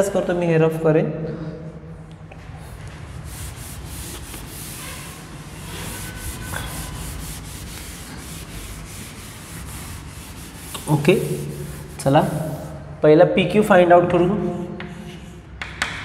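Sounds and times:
cloth rubbing on a chalkboard: 2.4 - 12.9.

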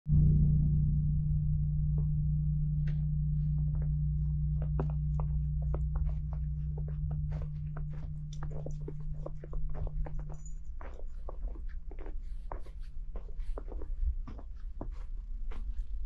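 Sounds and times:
low steady drone: 0.1 - 16.0
footsteps crunching in snow: 4.6 - 16.0.

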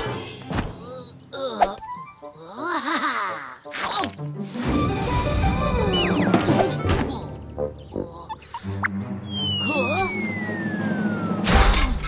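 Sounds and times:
cartoon background music: 0.0 - 12.0
comic sound effects: 9.4 - 12.0.

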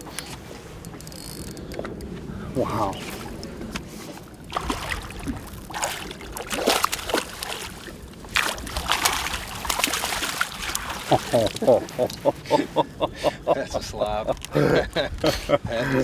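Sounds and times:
fish splashing in water: 4.2 - 12.2.

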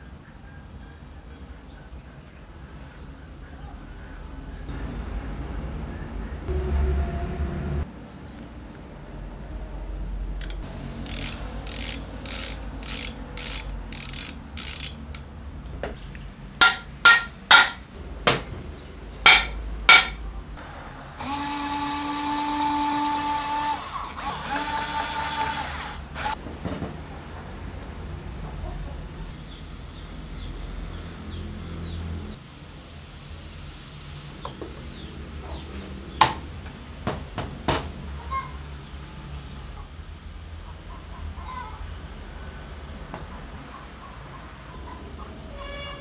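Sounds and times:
electric screwdriver motor: 10.4 - 15.0, 21.2 - 26.4
screwdriver ratcheting clicks: 10.4 - 15.3.

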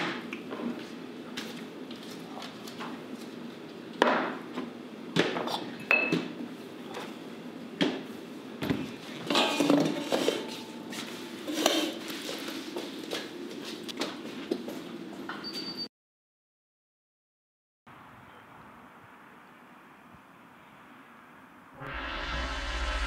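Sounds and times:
glass clinks: 5.9 - 6.2.

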